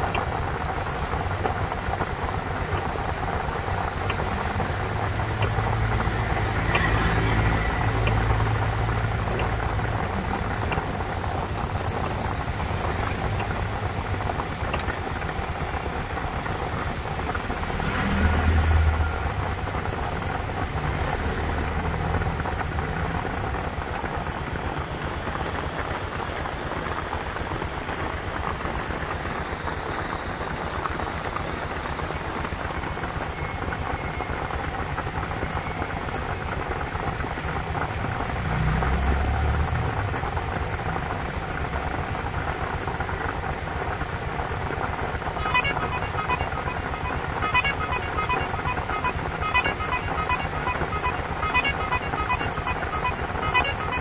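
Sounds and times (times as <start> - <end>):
heavy rain pouring: 0.0 - 54.0
traffic wading through water: 0.0 - 54.0
music notes: 45.4 - 54.0.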